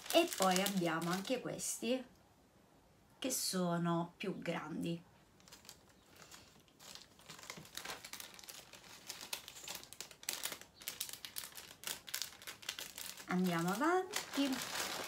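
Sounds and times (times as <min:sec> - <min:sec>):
plastic bag crinkling: 0:00.0 - 0:01.5, 0:05.2 - 0:15.0.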